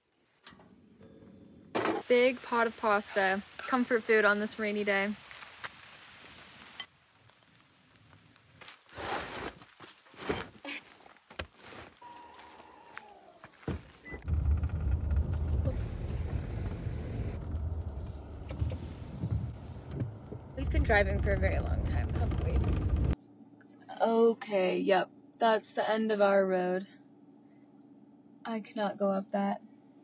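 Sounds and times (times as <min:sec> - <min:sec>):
car rumble on dirt road: 0:13.6 - 0:23.2.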